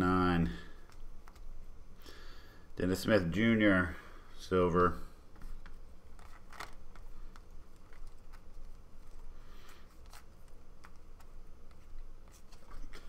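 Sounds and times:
cards flipping and sliding: 5.4 - 13.0.

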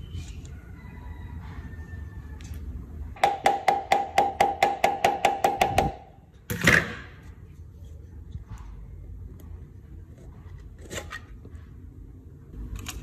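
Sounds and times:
hollow knocks on plastic mold: 3.2 - 6.0.

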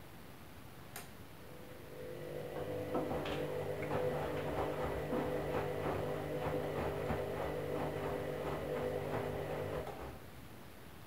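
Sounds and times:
washing machine motor hum: 1.4 - 10.3
tumbling load patter: 1.6 - 10.2.

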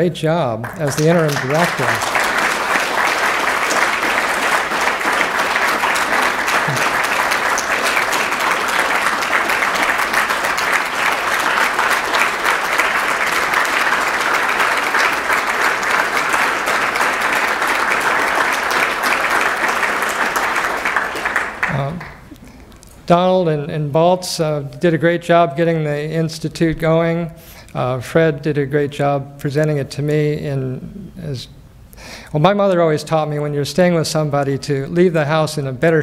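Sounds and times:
audience applauding: 0.6 - 22.4.

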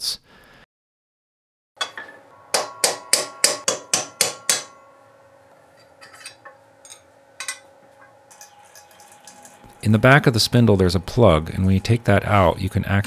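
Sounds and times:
hammer tapping metal: 1.8 - 9.6.

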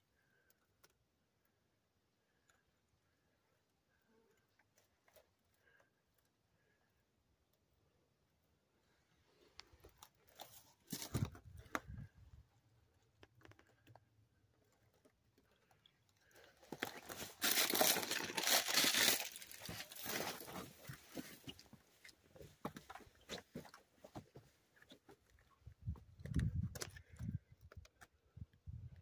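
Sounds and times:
dry brush crackling: 16.8 - 21.4
footsteps crunching on gravel: 16.8 - 21.7.

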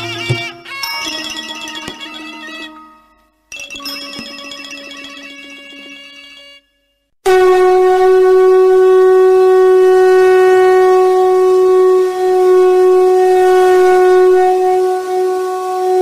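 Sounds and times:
long horn-like note: 7.3 - 16.0.

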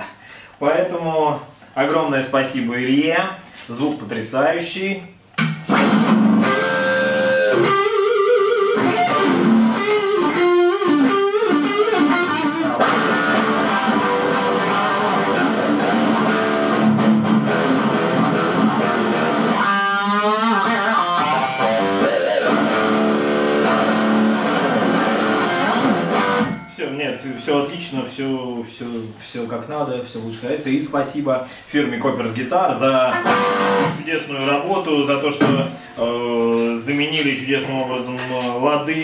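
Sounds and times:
electric guitar playing: 5.6 - 27.4, 33.0 - 34.1.

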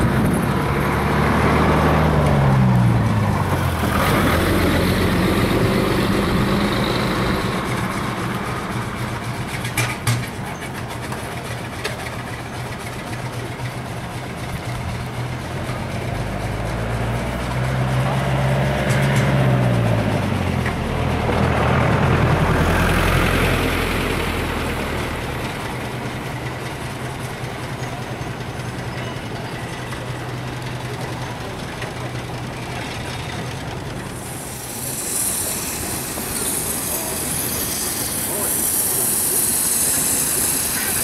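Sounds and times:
heavy vehicle engine passing: 0.0 - 11.1, 13.4 - 41.0
hiss of passing vehicle: 0.0 - 11.1, 14.6 - 28.1, 33.9 - 41.0
strong hiss: 34.1 - 41.0.

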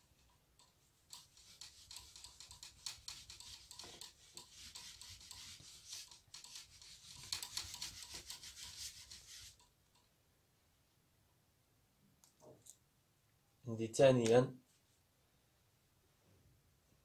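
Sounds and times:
eraser wiping whiteboard: 1.0 - 9.7.

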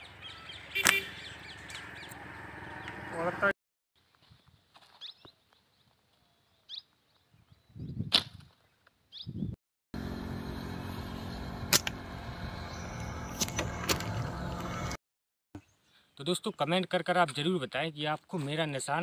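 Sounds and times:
sharp clicks: 11.7 - 12.0
slingshot snap: 11.7 - 12.0.

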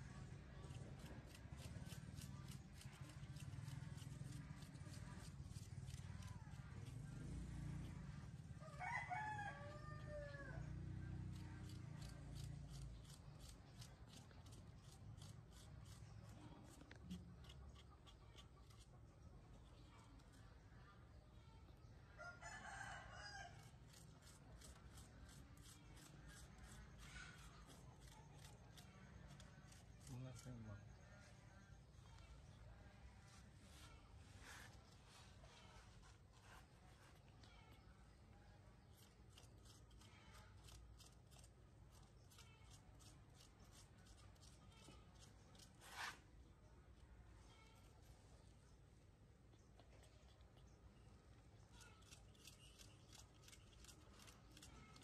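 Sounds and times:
rooster crowing: 8.6 - 10.6, 22.2 - 23.6.

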